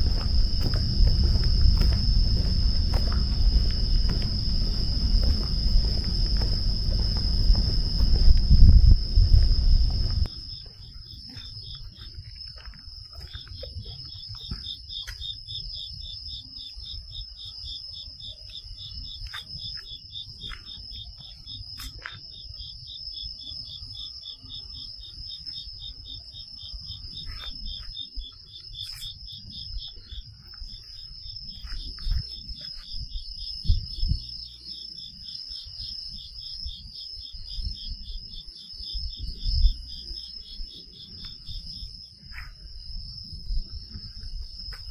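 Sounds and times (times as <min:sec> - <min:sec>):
low rumble: 0:00.0 - 0:10.6
fast pulsed insect trill: 0:00.0 - 0:44.9
high ringing insect trill: 0:00.0 - 0:44.9.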